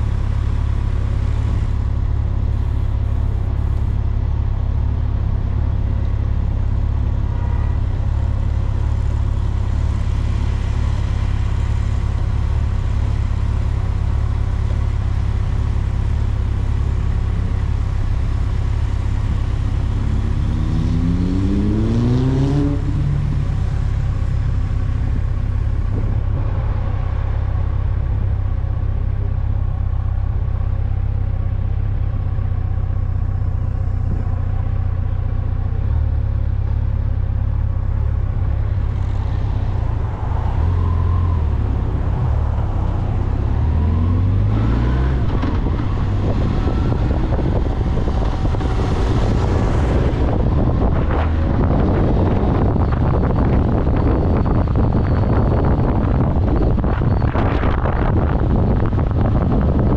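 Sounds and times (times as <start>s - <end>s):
vehicle road rumble: 0.0s - 59.9s
engine revving up: 20.0s - 23.4s.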